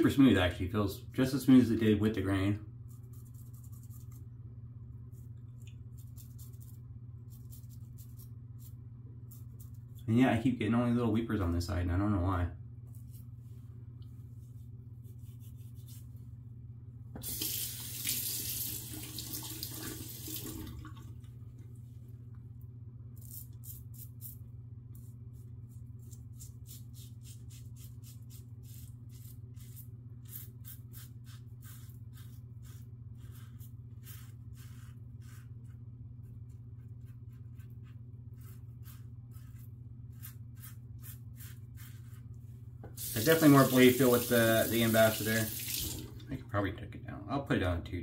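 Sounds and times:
tap water running into sink: 0:17.2 - 0:21.2, 0:43.0 - 0:46.3.

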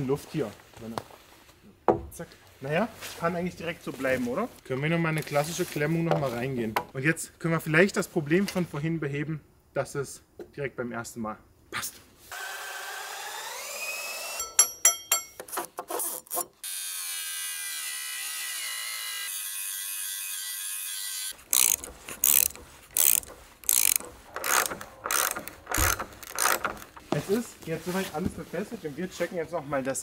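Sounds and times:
power drill whining: 0:12.3 - 0:14.6, 0:21.1 - 0:27.0
ratchet tightening nuts: 0:21.4 - 0:27.1.

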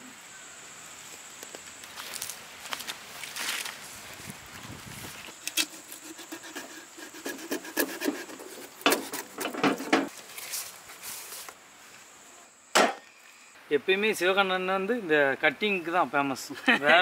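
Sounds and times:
sharp knocks: 0:12.7 - 0:13.1.

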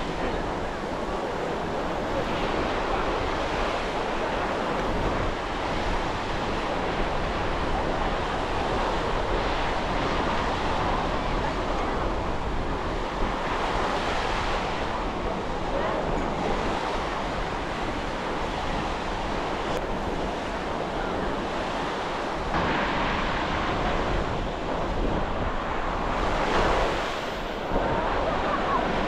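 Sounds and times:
waves breaking on beach: 0:00.0 - 0:29.0
wind buffeting microphone: 0:00.0 - 0:29.0.

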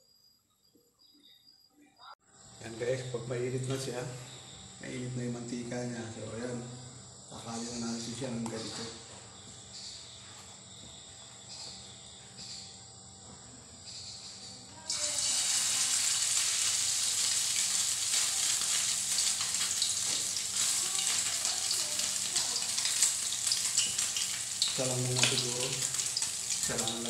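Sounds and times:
batter sizzling in hot oil: 0:14.9 - 0:27.0.

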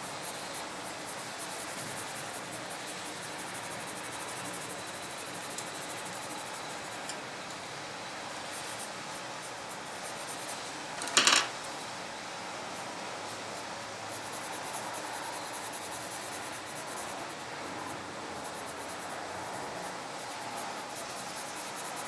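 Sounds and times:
pencil clattering on hard surface: 0:11.0 - 0:11.6.

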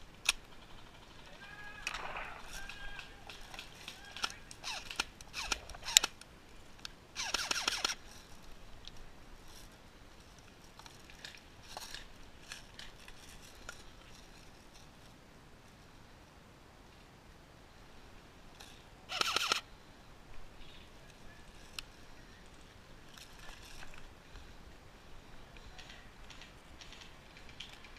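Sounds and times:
rustling: 0:00.0 - 0:16.0, 0:20.3 - 0:27.9
footsteps crackling in undergrowth: 0:01.2 - 0:06.9, 0:07.8 - 0:15.8, 0:20.4 - 0:24.6.

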